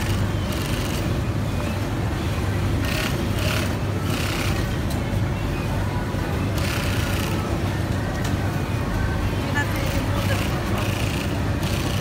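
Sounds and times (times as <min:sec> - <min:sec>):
sewing machine humming: 0:00.0 - 0:01.2, 0:02.8 - 0:04.6, 0:06.6 - 0:07.4, 0:09.8 - 0:12.0.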